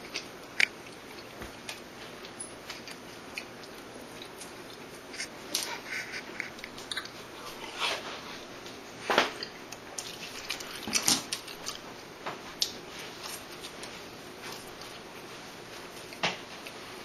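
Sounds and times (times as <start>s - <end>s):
person chewing and biting: 0.0s - 8.0s, 9.3s - 11.9s.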